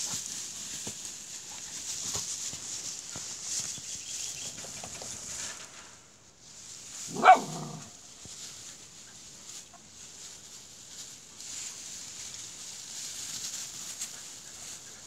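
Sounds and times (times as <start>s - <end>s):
dog barking: 7.1s - 7.9s.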